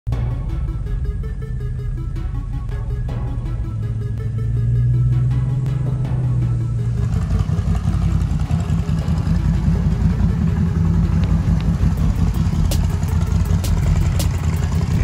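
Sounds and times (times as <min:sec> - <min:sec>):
atv engine idling: 0:05.7 - 0:15.0.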